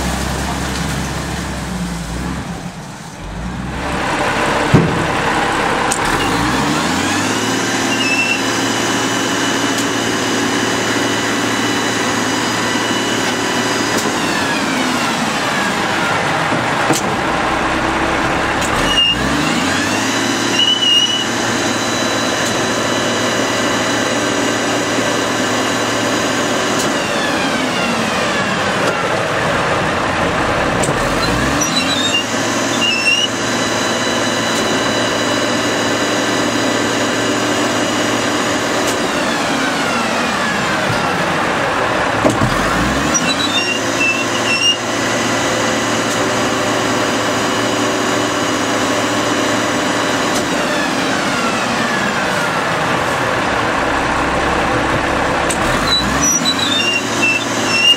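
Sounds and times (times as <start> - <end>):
garbage truck diesel engine revving: 0.0 - 57.9
packer squeaks: 20.6 - 21.3, 31.2 - 33.3, 43.0 - 44.8, 55.7 - 57.9.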